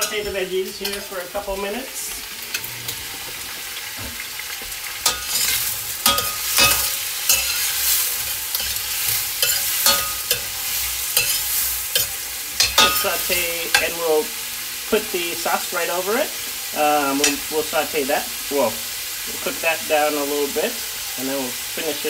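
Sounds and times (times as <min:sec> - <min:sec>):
metal utensil scraping a pan: 0:00.0 - 0:14.2, 0:16.5 - 0:17.7
vegetables sizzling in oil: 0:00.0 - 0:22.0.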